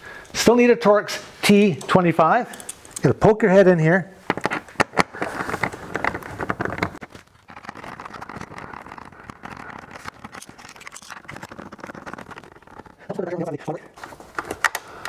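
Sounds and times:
screwdriver clicking and scraping: 1.8 - 3.1, 5.2 - 14.8
handling noise: 4.2 - 15.0.

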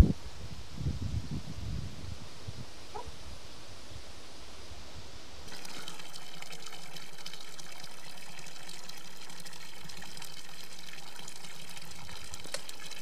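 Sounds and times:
running water: 5.5 - 13.0.

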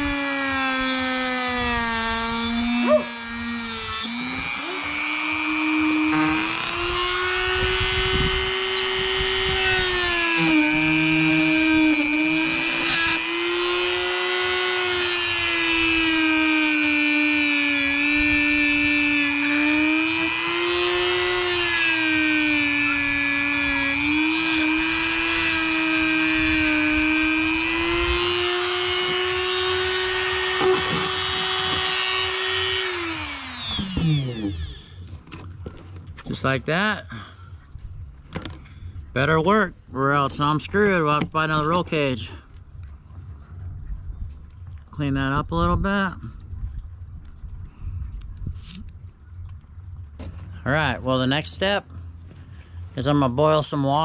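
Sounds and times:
rotary tool cutting plastic: 0.0 - 35.8.

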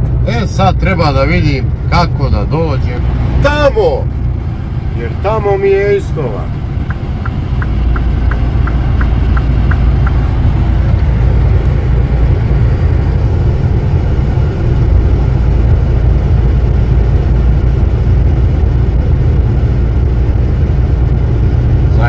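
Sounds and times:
lorry engine and tyres droning: 0.0 - 22.0
turn signal ticking: 6.5 - 14.0.

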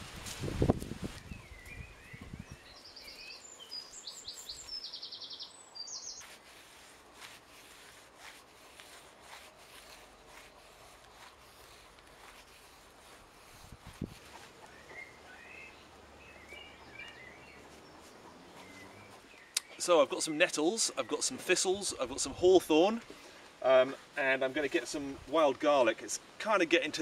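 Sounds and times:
stems rustling and cut with knife: 0.0 - 1.8, 3.0 - 4.8, 6.2 - 15.3, 16.4 - 19.9
songbird trilling: 1.2 - 6.3, 14.4 - 19.8.

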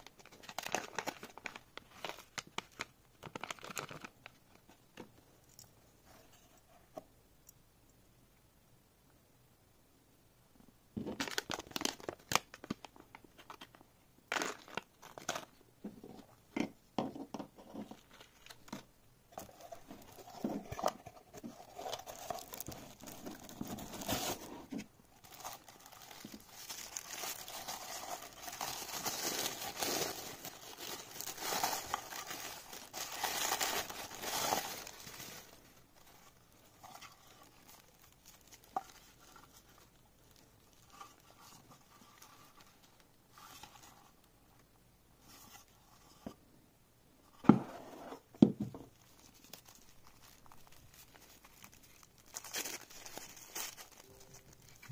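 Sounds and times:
packaging crinkling: 0.0 - 4.6, 11.2 - 15.6, 17.8 - 43.9, 48.9 - 54.9.

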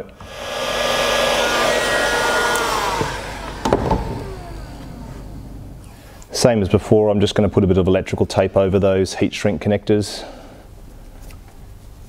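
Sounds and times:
heat gun blowing hot air: 0.0 - 6.3.

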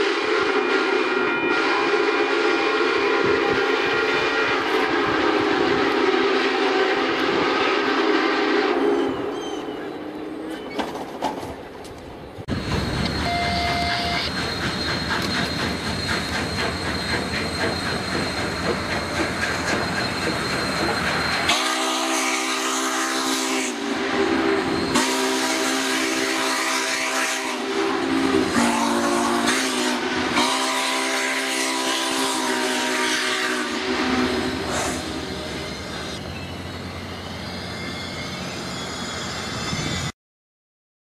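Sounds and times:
train rumbling on rails: 0.0 - 40.1
chime train whistle: 13.1 - 15.5, 19.7 - 36.2, 36.8 - 40.1.

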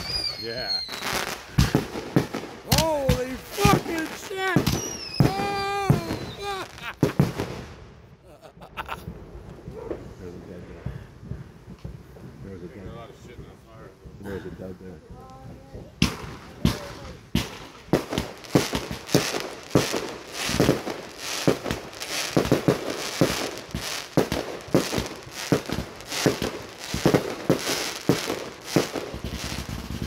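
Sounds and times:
firework crackling: 0.0 - 30.0
fireworks bursting: 0.0 - 30.0.

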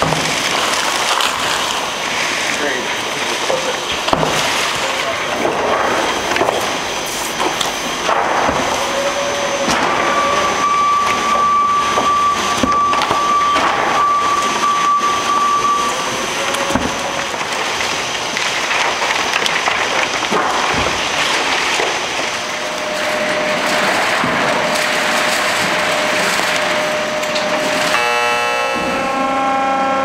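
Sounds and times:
paper sheets rustling and tumbling: 0.0 - 9.0, 16.2 - 28.0
conveyor running: 0.0 - 30.0
thin high whine: 6.0 - 18.1, 22.0 - 30.0.

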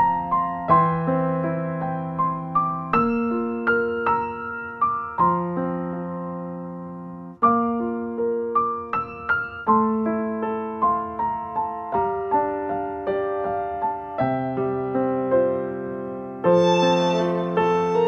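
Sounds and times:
electric piano melody: 0.0 - 18.0.

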